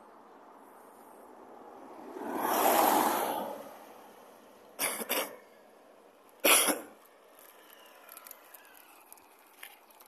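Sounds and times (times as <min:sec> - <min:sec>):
passing car road noise: 0:00.0 - 0:10.0
person coughing: 0:04.8 - 0:05.4, 0:06.4 - 0:07.0.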